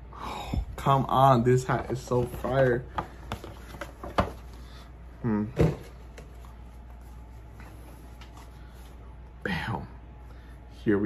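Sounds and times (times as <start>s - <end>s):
man murmuring: 5.2s - 5.6s.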